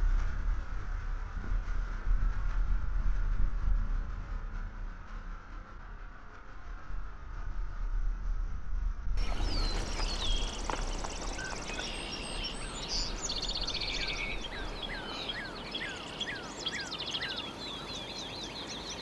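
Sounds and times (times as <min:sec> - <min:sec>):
bird whistles: 0:09.2 - 0:19.0
songbirds trilling: 0:09.2 - 0:19.0.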